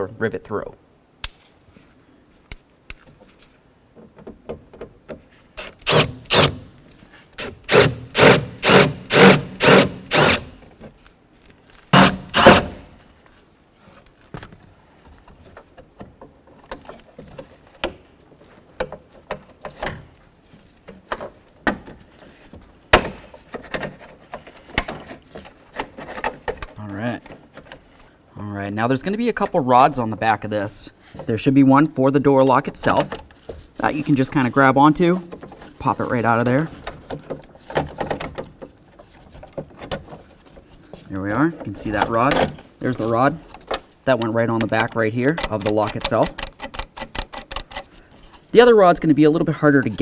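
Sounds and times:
drill grinding through rivets: 5.6 - 6.6, 7.4 - 10.5, 11.9 - 12.8.

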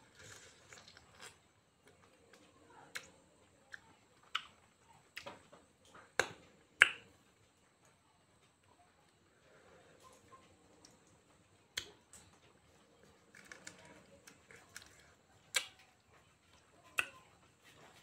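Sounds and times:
quiet chewing: 0.0 - 18.0
wet mouth clicks and smacks: 15.5 - 15.8.

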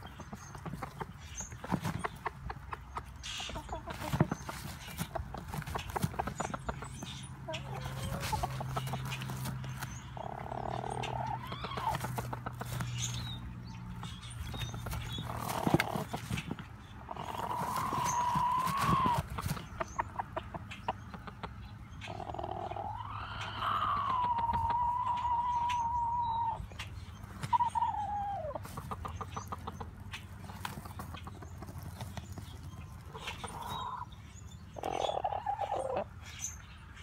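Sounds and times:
soft clicking clucks: 0.0 - 10.0, 14.0 - 22.8, 26.7 - 34.0
rooster crooning calls: 22.1 - 26.7.

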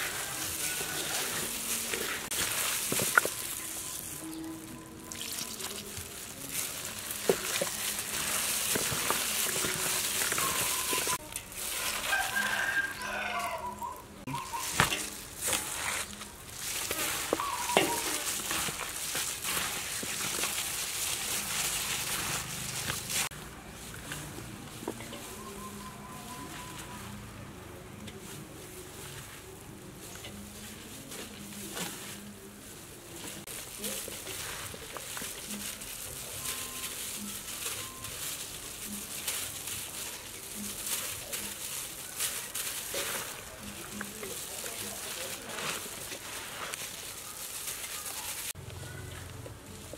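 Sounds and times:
hands squishing cabbage: 0.0 - 27.2, 28.0 - 49.9
farmyard animal calling: 9.4 - 16.0, 16.8 - 18.8.

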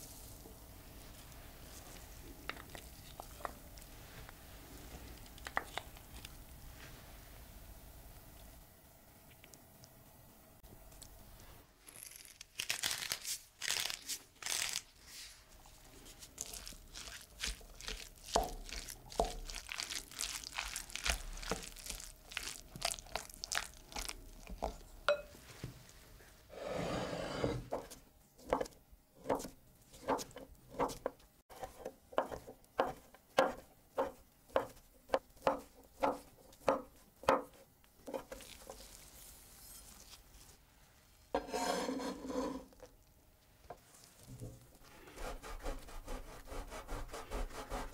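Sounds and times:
knife chopping on wooden board: 31.6 - 37.5.

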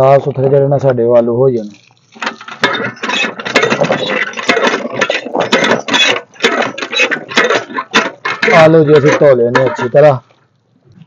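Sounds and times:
hand pump clanking and creaking: 1.6 - 10.3.

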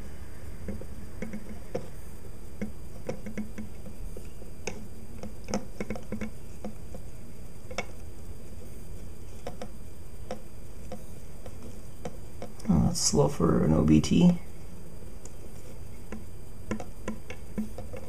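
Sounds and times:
paintbrush tapping plastic cup: 0.6 - 2.0, 2.6 - 7.1, 7.7 - 8.0, 16.1 - 18.0.

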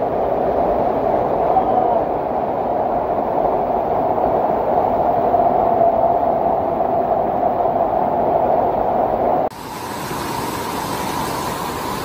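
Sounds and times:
mountain stream and waterfall rushing: 9.5 - 12.0.

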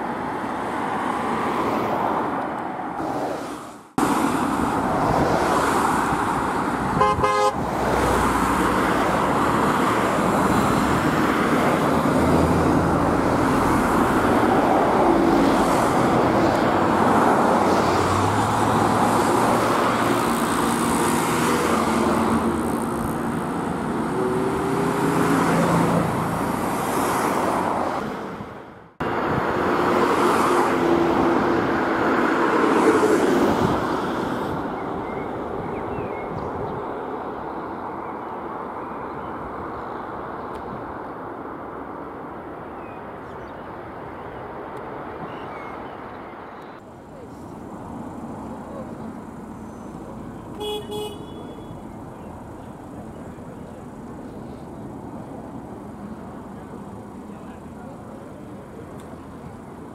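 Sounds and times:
road traffic: 0.0 - 59.9
vehicle horn blast: 7.0 - 7.7, 50.6 - 51.8.

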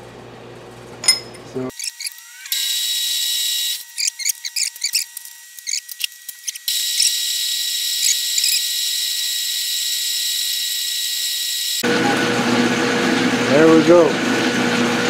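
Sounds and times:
metal lathe whining: 1.1 - 15.0
drill bit squeaking: 1.7 - 11.8.

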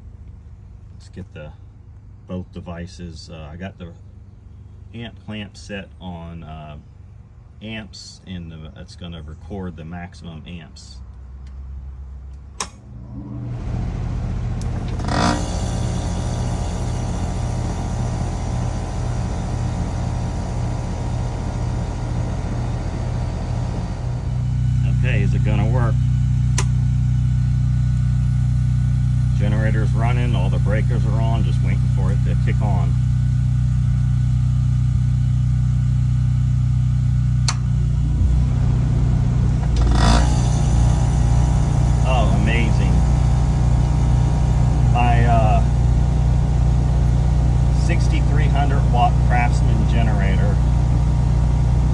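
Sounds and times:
sharp click: 12.4 - 12.8, 26.6 - 26.8, 37.4 - 37.7
compressor starting rush: 12.6 - 51.9
machine motor humming: 12.8 - 51.9.

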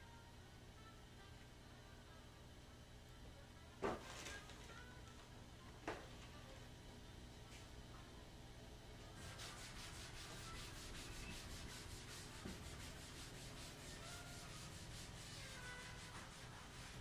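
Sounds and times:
chalkboard being wiped: 9.2 - 17.0.

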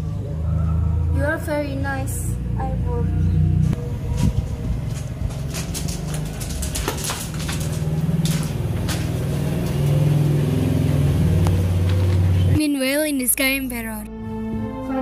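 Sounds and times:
low rumble hum: 0.0 - 12.6.

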